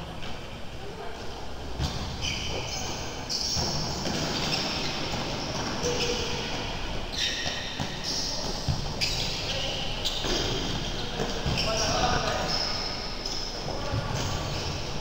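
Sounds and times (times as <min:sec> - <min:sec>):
sports hall din: 0:00.0 - 0:15.0.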